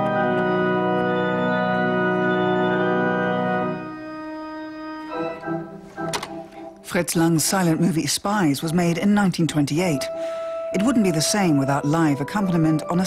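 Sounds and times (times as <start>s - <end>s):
organ chord: 0.0s - 6.9s.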